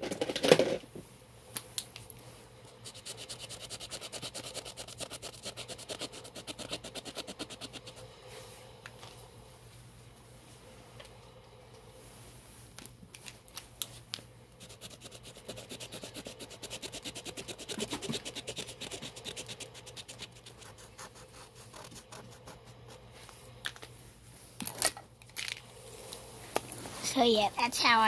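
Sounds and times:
marker scribbling on canvas: 0:02.8 - 0:08.0, 0:14.6 - 0:23.0.

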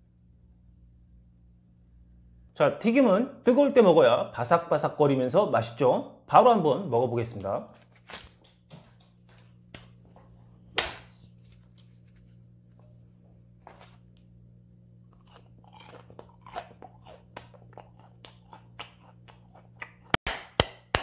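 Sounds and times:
crunching and chewing fried food: 0:11.2 - 0:14.3, 0:15.0 - 0:20.2.

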